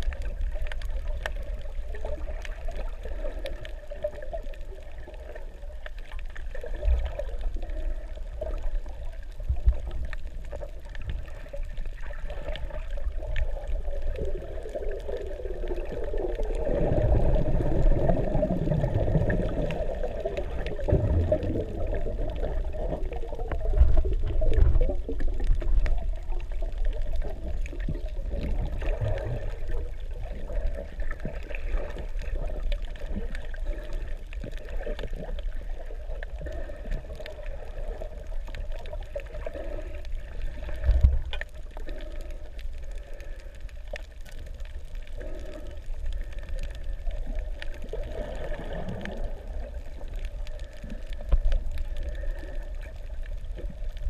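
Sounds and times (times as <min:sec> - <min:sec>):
faint underwater clicks: 0:00.0 - 0:54.0
muffled underwater water rushing: 0:00.0 - 0:54.0.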